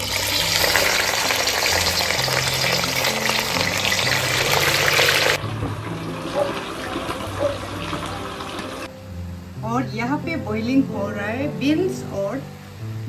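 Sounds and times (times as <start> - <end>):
fish sizzling in hot oil: 0.0 - 9.4
low background music: 0.0 - 13.0.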